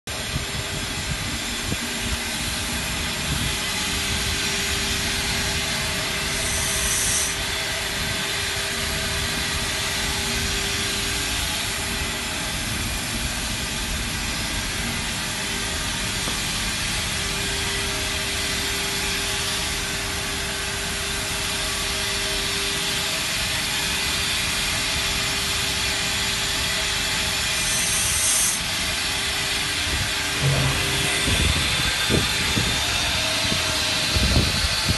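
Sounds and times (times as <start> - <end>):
boiler plant roar and hiss: 0.1 - 25.1, 25.8 - 34.9
sharp high steam hisses: 3.2 - 8.0, 27.3 - 29.4
constant low hum: 30.1 - 33.5.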